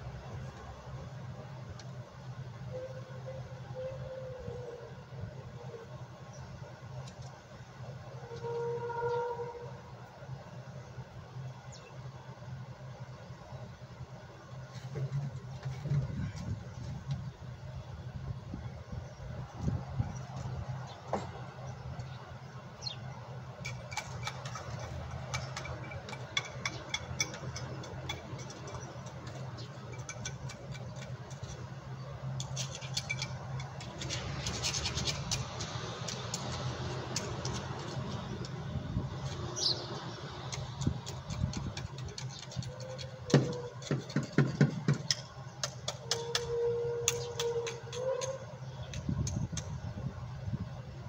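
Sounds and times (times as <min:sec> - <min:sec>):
low mechanical hum: 0:00.0 - 0:51.0
metal clicks scrapes and knocks: 0:23.6 - 0:38.6, 0:40.4 - 0:49.8.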